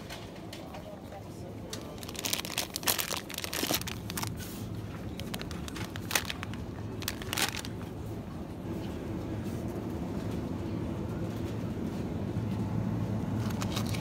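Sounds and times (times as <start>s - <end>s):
low shop hum: 0.0s - 14.0s
plastic bag crinkling: 1.7s - 7.9s.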